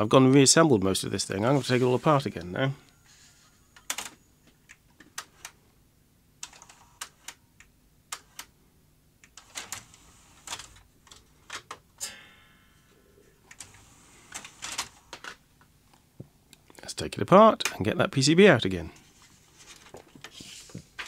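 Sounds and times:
cassette mechanism whirring: 9.2s - 12.4s, 13.4s - 15.4s.

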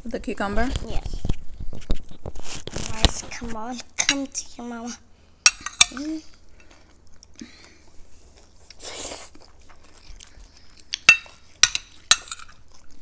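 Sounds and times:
soft chewing: 0.7s - 3.9s, 6.0s - 13.0s
cutlery clinking against plates: 5.5s - 6.7s, 11.0s - 12.6s.

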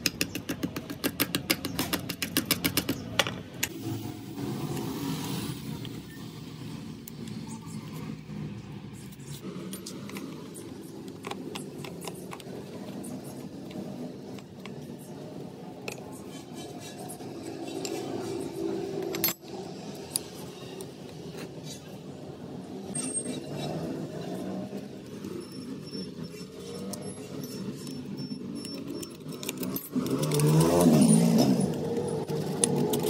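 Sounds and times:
metal tools clinking: 19.0s - 19.6s, 22.9s - 23.9s, 25.5s - 33.0s.

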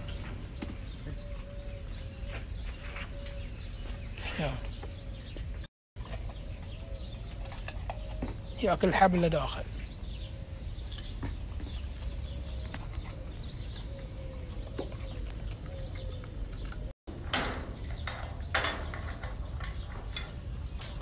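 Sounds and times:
monkey chewing crunchily: 6.0s - 8.9s.

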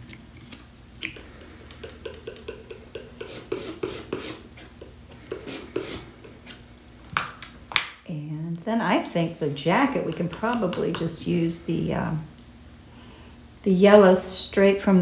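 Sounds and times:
paintbrush tapping and scraping: 1.0s - 6.6s, 9.7s - 11.3s.

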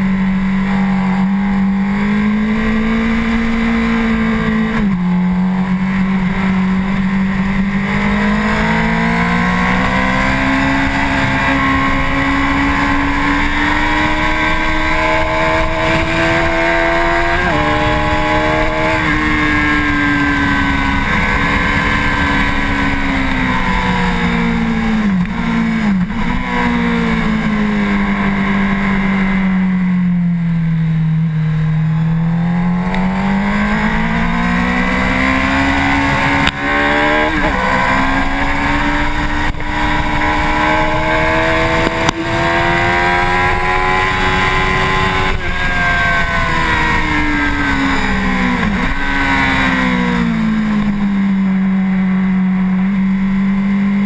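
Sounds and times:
motorcycle engine revving: 0.0s - 54.0s
wind rush: 1.8s - 28.5s.

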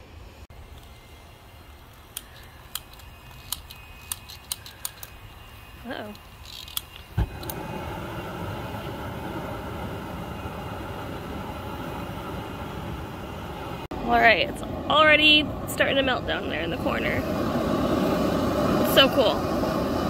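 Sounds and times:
burner flame rushing: 0.6s - 20.0s
lighter igniter clicking: 1.9s - 5.3s, 6.1s - 7.7s
burner igniting whump: 6.2s - 13.9s.

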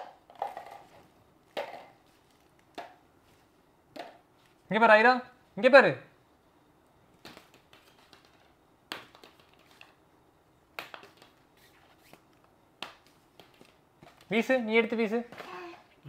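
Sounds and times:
plastic balls knocking together: 0.0s - 3.0s, 3.9s - 4.3s, 7.2s - 10.0s, 10.7s - 11.5s, 12.2s - 14.4s.

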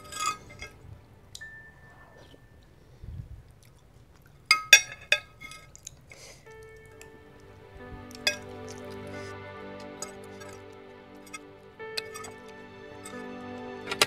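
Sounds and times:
quiet chewing: 3.4s - 4.5s, 5.4s - 7.1s.

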